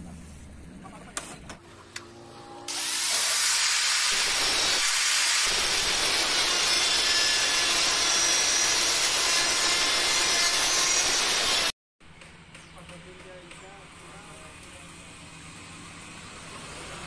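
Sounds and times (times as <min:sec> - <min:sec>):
angle grinder cutting sheet steel: 0:01.7 - 0:11.7.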